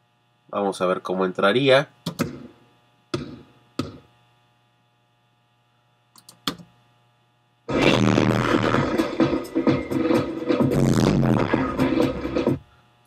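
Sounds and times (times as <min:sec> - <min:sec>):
loud electronic music: 0:07.7 - 0:12.6.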